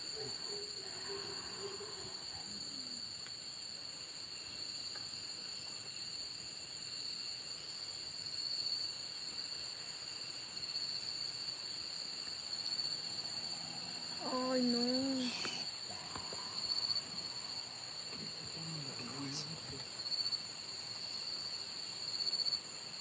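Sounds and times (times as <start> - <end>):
crickets chirping: 0.0 - 23.0.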